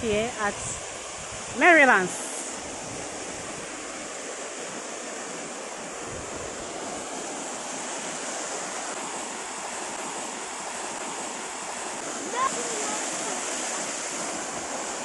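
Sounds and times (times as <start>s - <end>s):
waterfall pouring into pool: 6.8s - 15.0s.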